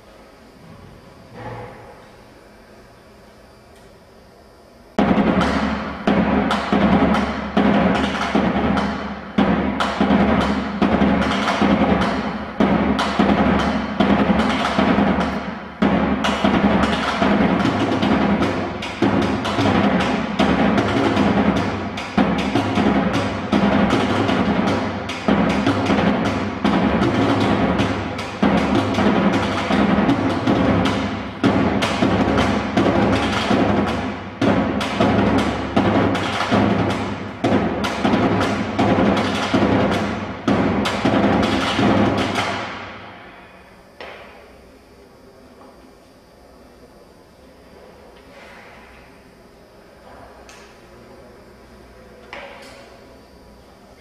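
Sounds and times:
fast drum strikes: 0:05.0 - 0:43.1.

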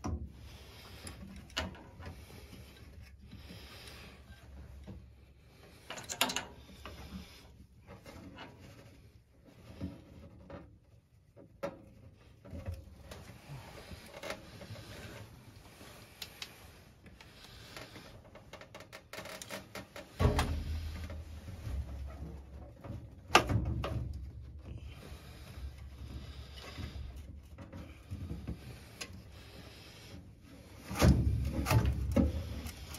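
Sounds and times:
clicks and knocks of handling parts: 0:05.8 - 0:07.0, 0:18.2 - 0:24.7.

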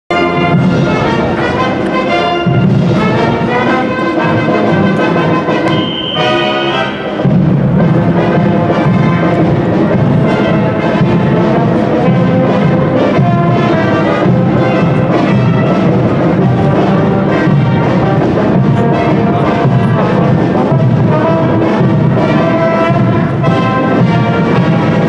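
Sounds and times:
marching brass band: 0:00.1 - 0:25.0.

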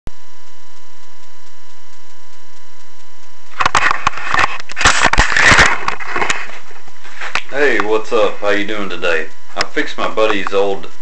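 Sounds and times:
electrical hum: 0:00.1 - 0:11.0
camera handling noise: 0:03.5 - 0:07.5.

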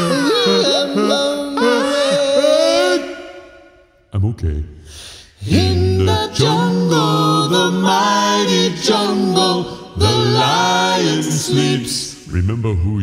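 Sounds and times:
male quartet singing in harmony: 0:00.0 - 0:03.7, 0:05.4 - 0:12.8.

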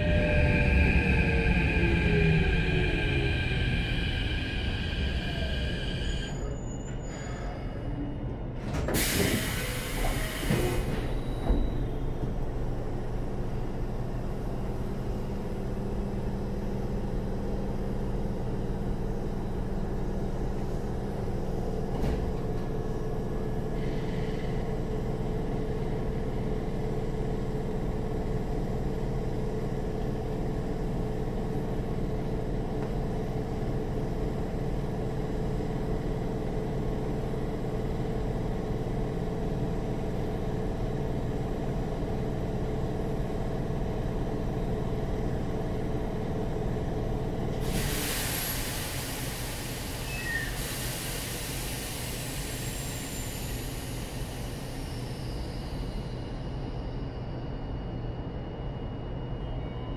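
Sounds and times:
train equipment humming: 0:00.0 - 0:06.6
train doors opening with air rush: 0:08.5 - 0:13.1, 0:20.5 - 0:24.8, 0:47.5 - 0:56.2.

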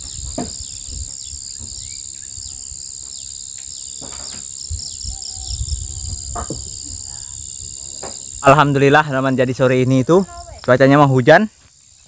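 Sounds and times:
short falling insect calls: 0:00.0 - 0:08.7
insect high-pitched drone: 0:00.0 - 0:12.0
insect pulsing chirp: 0:00.0 - 0:12.0.

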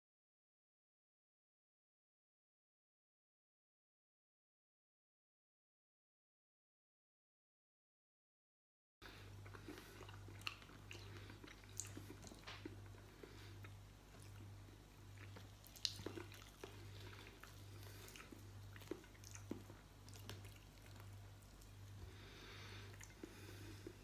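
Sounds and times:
steady low hum: 0:09.0 - 0:24.0
chewing with wet smacks: 0:09.4 - 0:22.2, 0:22.8 - 0:24.0.

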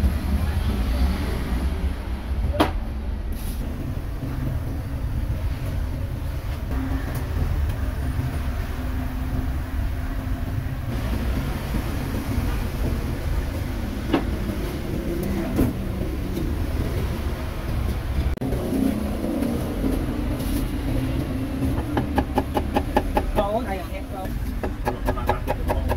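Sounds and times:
passing vehicle engines rumble: 0:00.0 - 0:25.9.

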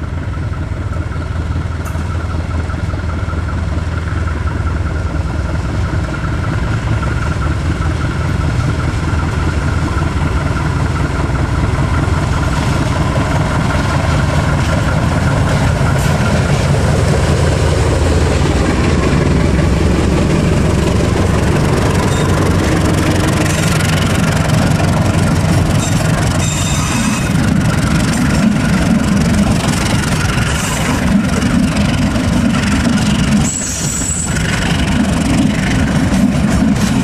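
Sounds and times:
diesel locomotive engine: 0:00.0 - 0:37.0
train wheels clacking on rails: 0:00.0 - 0:37.0.

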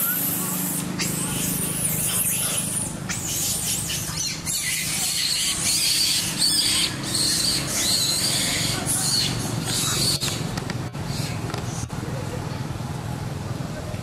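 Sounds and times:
monkeys squealing: 0:00.0 - 0:10.5.

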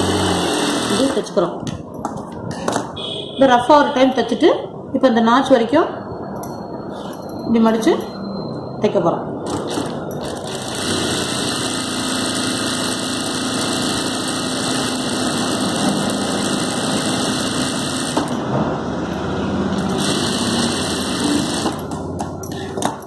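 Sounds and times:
sewing machine running: 0:00.0 - 0:01.3, 0:09.5 - 0:18.4, 0:19.8 - 0:22.1.

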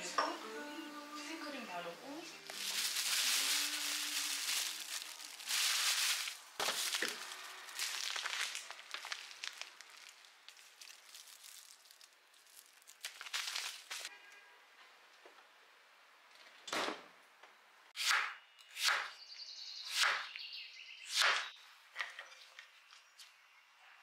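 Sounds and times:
plastic packaging rustling: 0:02.4 - 0:14.1.

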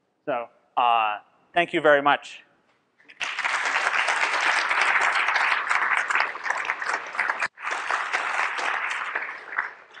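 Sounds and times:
audience applauding: 0:03.1 - 0:10.0.

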